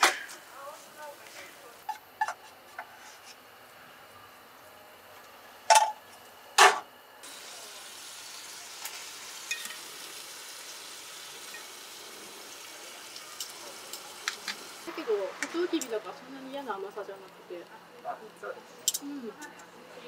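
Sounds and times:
steady sizzling hiss: 0:00.0 - 0:20.0
utensils clinking: 0:09.4 - 0:09.9, 0:11.4 - 0:11.8, 0:13.0 - 0:14.7.

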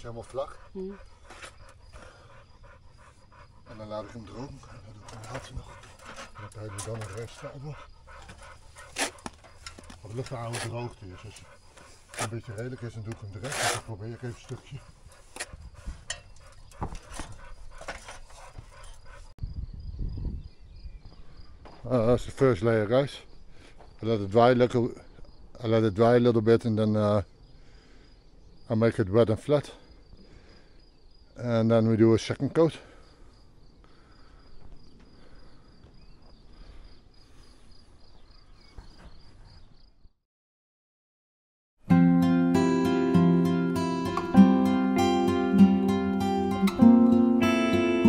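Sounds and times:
cricket chirping: 0:00.0 - 0:40.1
sponge scraping on plaster: 0:08.8 - 0:15.6.

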